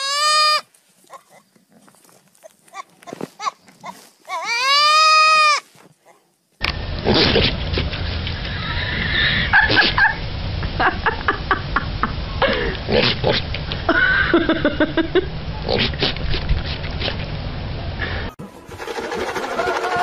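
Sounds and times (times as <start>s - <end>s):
goat calling: 0.0s - 1.6s, 2.4s - 5.8s.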